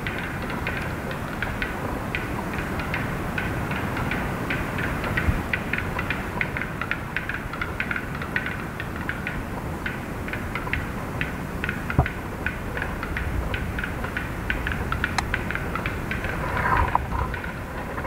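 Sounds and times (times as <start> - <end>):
steady low rumble: 13.0 - 18.0.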